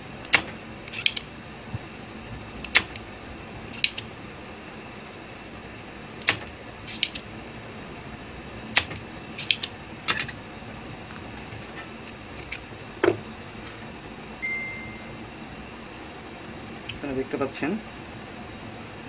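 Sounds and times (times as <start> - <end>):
steady background hum: 0.0 - 19.0
steady high tone: 14.4 - 15.5.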